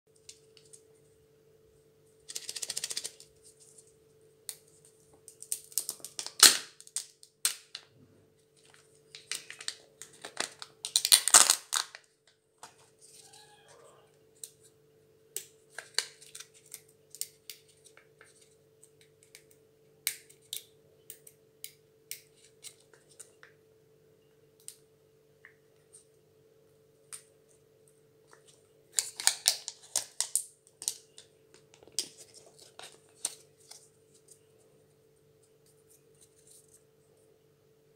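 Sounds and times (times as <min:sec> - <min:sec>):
faint steady hum: 0:00.1 - 0:37.9
plastic egg clicks and rustles: 0:02.2 - 0:03.9, 0:08.6 - 0:12.9, 0:28.2 - 0:34.7
foil wrapper crinkling and tearing: 0:05.4 - 0:07.7, 0:08.6 - 0:12.1, 0:28.9 - 0:31.0.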